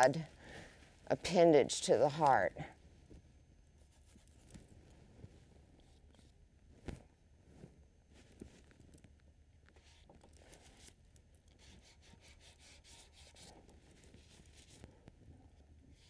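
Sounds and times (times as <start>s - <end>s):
paint brush rubbing on canvas: 11.6s - 14.8s.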